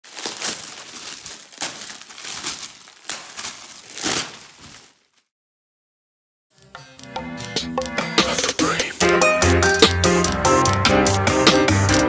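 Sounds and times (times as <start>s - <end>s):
plastic bag crinkling: 0.0s - 5.3s.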